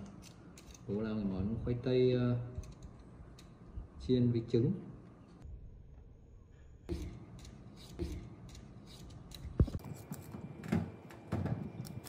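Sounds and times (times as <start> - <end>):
utensils scraping and clicking: 0.0 - 1.0, 6.9 - 10.4.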